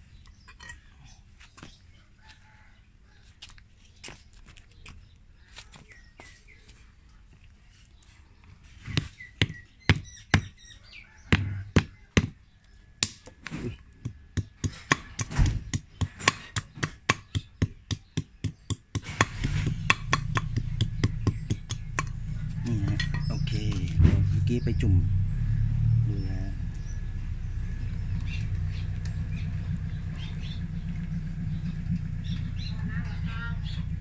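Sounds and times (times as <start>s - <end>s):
knife chopping wooden stick: 13.0s - 24.3s
low steady rumble: 19.2s - 34.0s.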